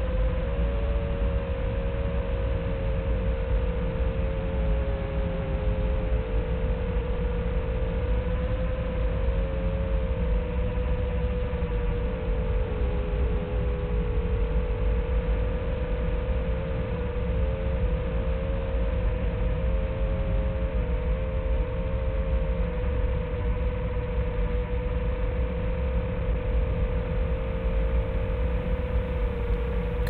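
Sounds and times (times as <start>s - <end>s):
steady low rumble: 26.0s - 30.0s
quadcopter motors whining: 26.4s - 30.0s.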